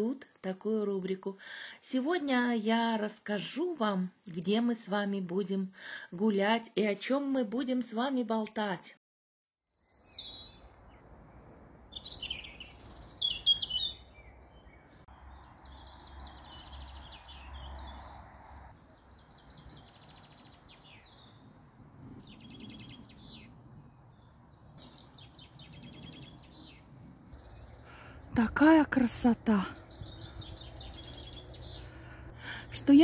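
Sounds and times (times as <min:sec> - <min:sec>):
faint outdoor background: 0:00.0 - 0:33.0
songbirds chirping and trilling: 0:09.6 - 0:33.0.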